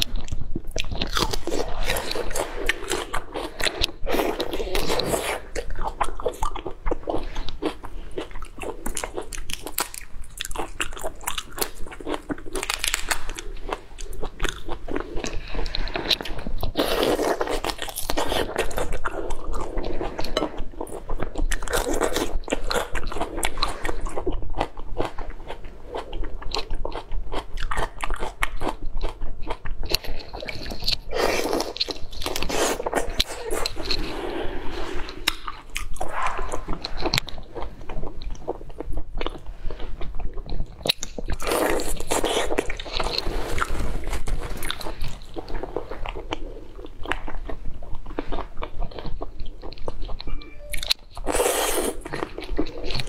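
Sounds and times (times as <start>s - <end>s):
person chewing crunchy food: 0.0s - 53.0s.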